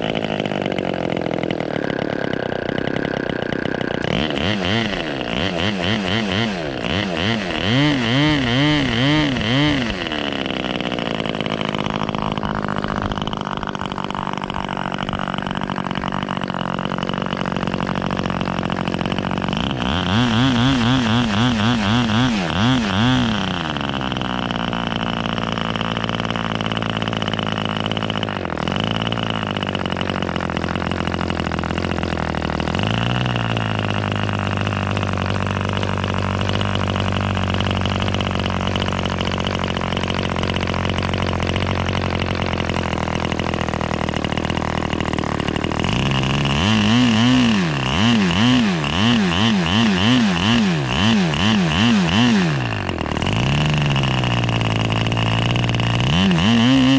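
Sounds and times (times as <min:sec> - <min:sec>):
model glow engine running: 0:00.0 - 0:56.9.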